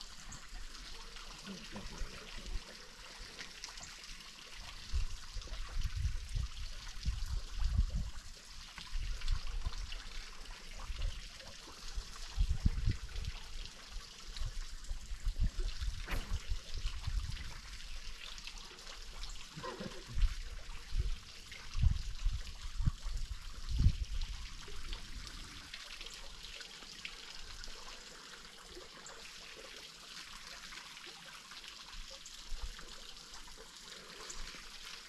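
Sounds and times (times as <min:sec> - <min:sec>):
water lapping against boat: 0:00.0 - 0:08.2, 0:08.8 - 0:26.8
dull low thumps: 0:15.9 - 0:17.4.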